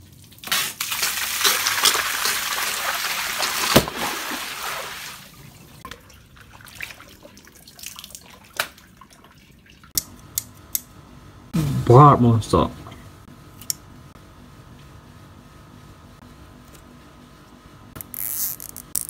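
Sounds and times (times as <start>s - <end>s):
water dripping and trickling: 0.0s - 10.0s
water rushing and splashing: 1.3s - 5.5s.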